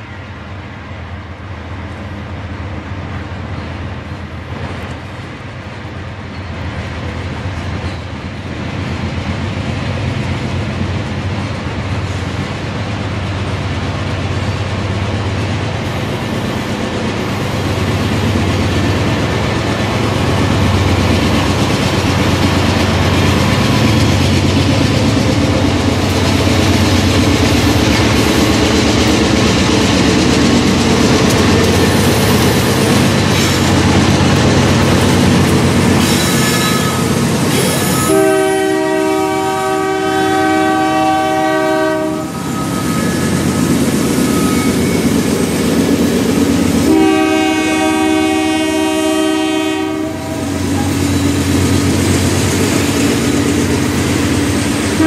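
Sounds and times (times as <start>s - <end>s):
diesel locomotive engine rumble: 0.0s - 55.0s
train cars clattering on rails: 3.2s - 39.7s, 40.4s - 55.0s
train air horn blast: 36.0s - 43.4s, 46.8s - 51.0s.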